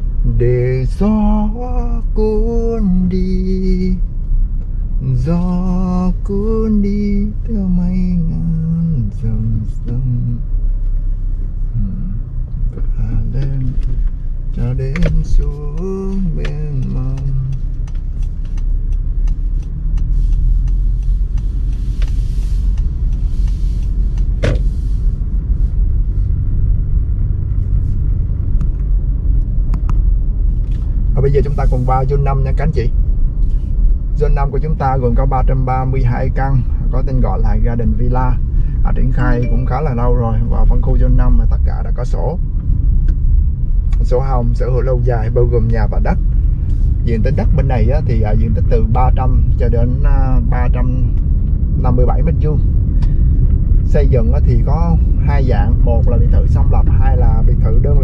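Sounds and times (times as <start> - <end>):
car driving rumble: 0.0 - 58.0.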